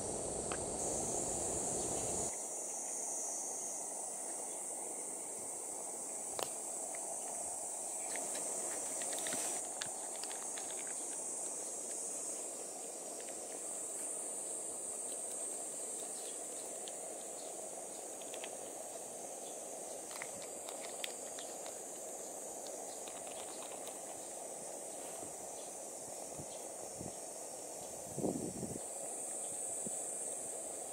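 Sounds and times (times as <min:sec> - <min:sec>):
high-pitched insect chorus: 0:00.0 - 0:30.9.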